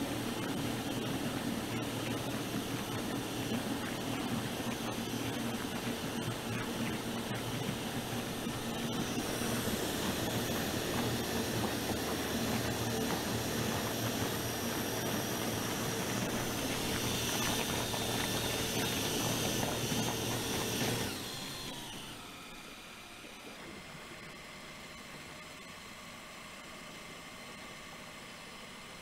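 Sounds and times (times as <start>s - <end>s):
churning water hiss: 0.0s - 22.4s
electric drill motor whine: 0.0s - 27.2s.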